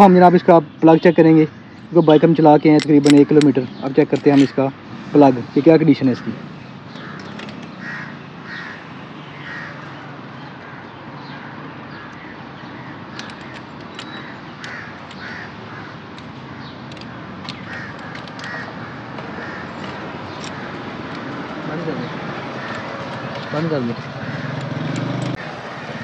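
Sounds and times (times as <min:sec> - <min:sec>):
crow-like caws: 0:06.1 - 0:24.8
sharp clicks: 0:07.2 - 0:07.8, 0:13.1 - 0:25.4.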